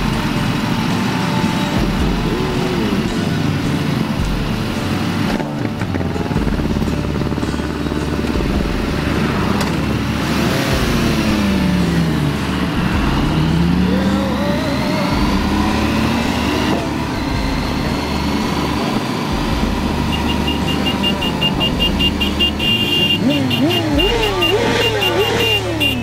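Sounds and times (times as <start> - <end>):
motorcycle engines running: 0.0 - 26.0
rapid high beeping: 13.4 - 26.0.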